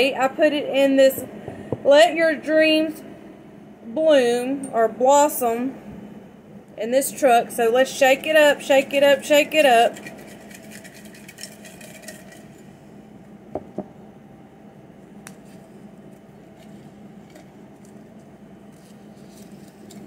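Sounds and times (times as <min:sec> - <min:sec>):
paper slips rattling in container: 0:09.8 - 0:12.5.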